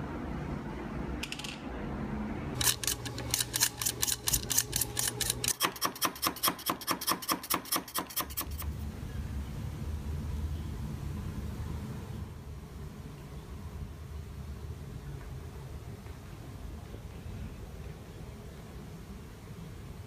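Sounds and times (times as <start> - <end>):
knife blade shaving pencil wood: 2.6 - 8.6.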